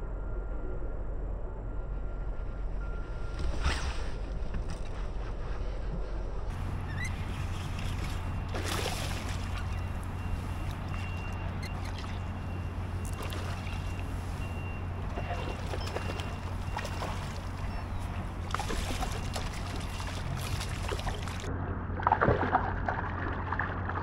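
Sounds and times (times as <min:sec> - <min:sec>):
low rumble: 0:00.0 - 0:24.0
water lapping and trickling: 0:06.5 - 0:24.0.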